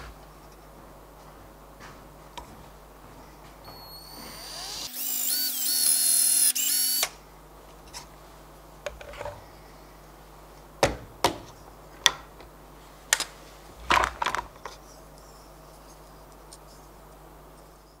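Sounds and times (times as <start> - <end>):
cordless drill whining: 3.7 - 7.1.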